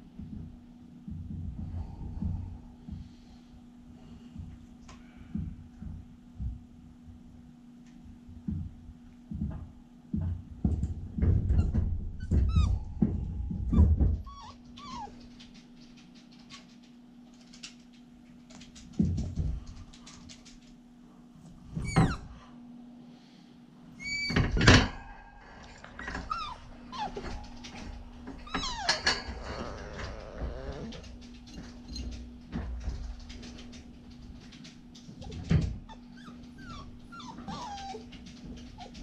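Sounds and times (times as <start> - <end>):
puppy whining and yipping: 12.2 - 12.8, 13.7 - 15.5, 24.0 - 24.4, 26.0 - 27.6, 28.4 - 32.0, 35.2 - 39.0.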